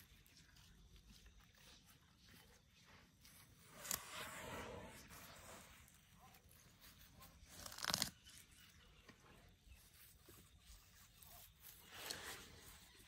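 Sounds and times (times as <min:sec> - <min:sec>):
grass ripping: 0:07.4 - 0:08.4.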